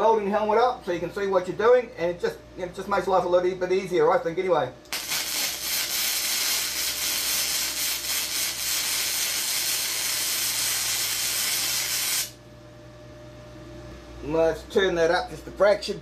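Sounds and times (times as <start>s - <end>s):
arc welding crackling sizzle: 4.9s - 12.4s.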